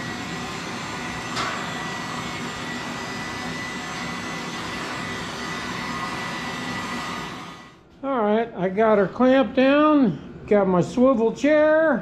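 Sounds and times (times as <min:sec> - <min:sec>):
electric blower with high whine: 0:00.0 - 0:07.8.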